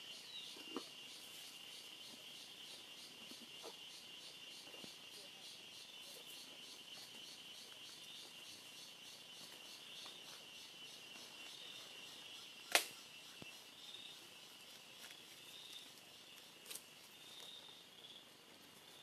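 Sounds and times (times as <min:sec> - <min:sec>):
insect chorus chirring: 0:00.0 - 0:19.0
sharp snap: 0:12.7 - 0:13.0.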